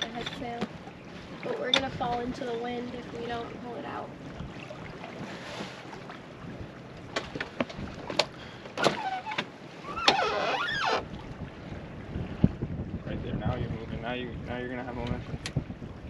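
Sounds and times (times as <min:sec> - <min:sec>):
wind over water: 0:00.0 - 0:16.0
clicks and knocks of boat gear: 0:07.1 - 0:11.1, 0:15.0 - 0:15.6.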